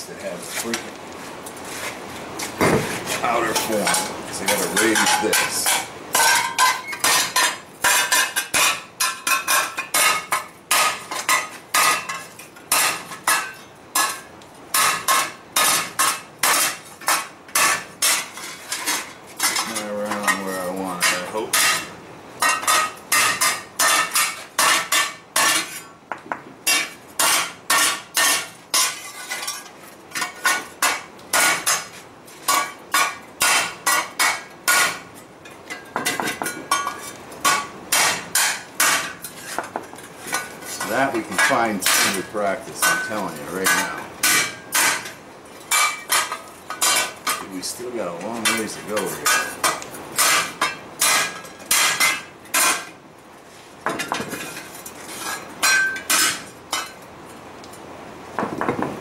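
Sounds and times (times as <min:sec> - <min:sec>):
hammer striking steel: 0:40.8 - 0:45.1.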